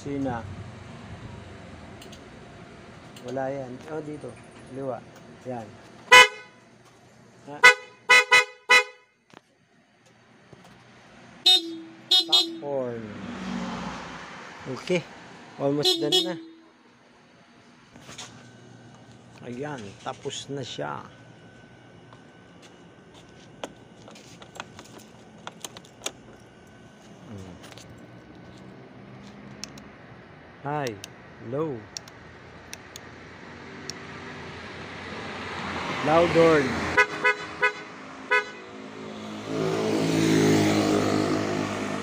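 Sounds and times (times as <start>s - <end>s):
scooter horn beeps: 6.1s - 6.6s, 7.6s - 9.2s, 11.4s - 12.7s, 15.8s - 16.8s, 37.0s - 38.7s
switches clicking and rattling: 23.6s - 26.6s, 30.8s - 31.2s, 31.9s - 33.1s.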